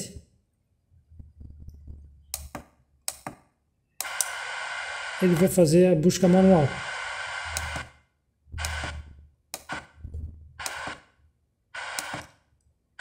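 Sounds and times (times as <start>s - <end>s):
radio tuner click: 4.0s - 5.6s, 6.2s - 8.0s, 8.6s - 11.0s, 11.8s - 12.4s
radio static bursts: 4.0s - 11.1s, 11.8s - 12.3s.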